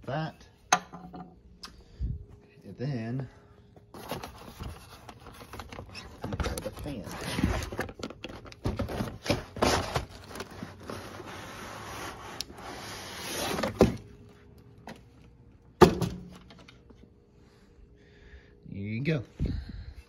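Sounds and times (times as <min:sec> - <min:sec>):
plastic scraping against cardboard: 0:04.0 - 0:14.0
fan being set down thump: 0:15.8 - 0:16.5.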